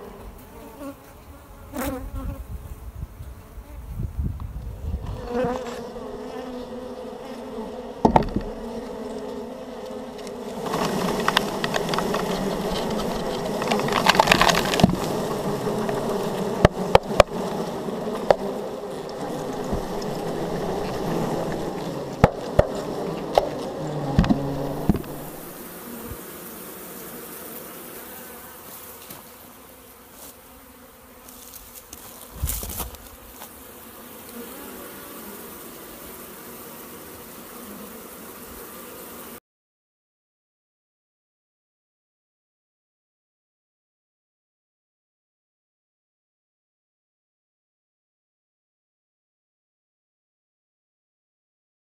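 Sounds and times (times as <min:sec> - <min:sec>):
honeybees buzzing: 0:00.0 - 0:39.4.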